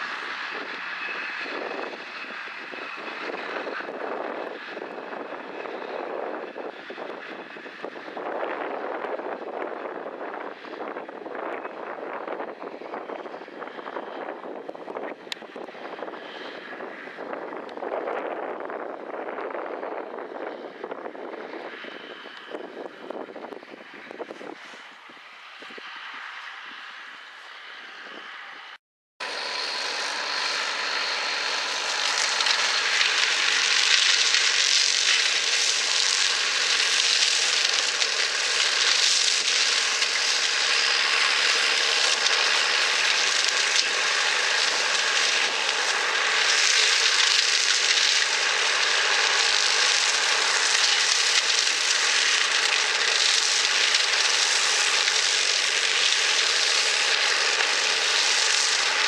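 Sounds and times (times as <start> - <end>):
tractor engine drone under load: 0.0 - 59.0
flail head chopping brush: 29.6 - 59.0.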